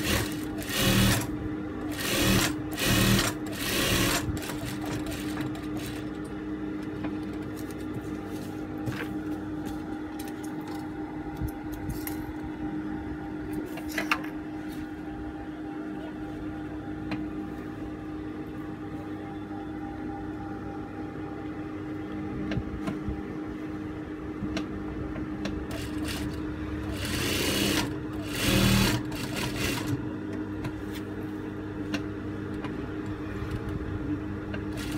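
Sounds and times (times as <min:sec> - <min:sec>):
sewing machine stitching: 0:00.0 - 0:01.3, 0:01.9 - 0:06.1, 0:25.7 - 0:30.0
sewing machine motor humming: 0:00.0 - 0:06.3, 0:25.7 - 0:30.0, 0:34.6 - 0:34.9.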